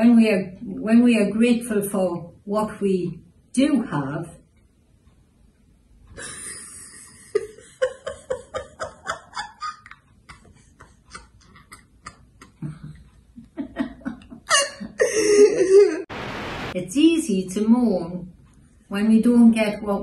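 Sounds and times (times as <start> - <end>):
elderly woman giggling: 6.2 - 16.1.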